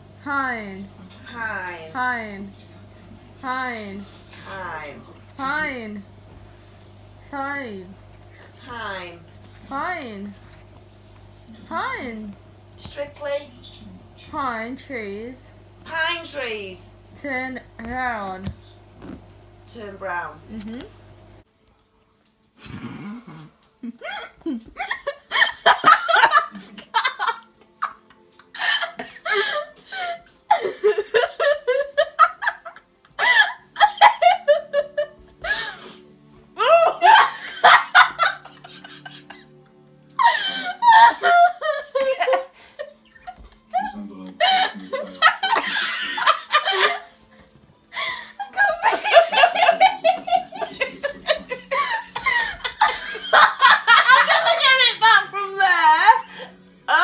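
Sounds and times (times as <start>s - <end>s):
people laughing and giggling: 23.6s - 36.0s, 36.6s - 55.2s.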